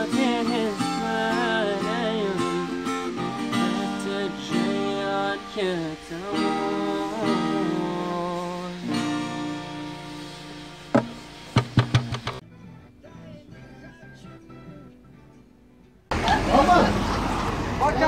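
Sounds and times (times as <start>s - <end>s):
man singing: 0.0s - 10.3s, 12.3s - 15.5s
acoustic guitar strumming: 0.0s - 16.7s.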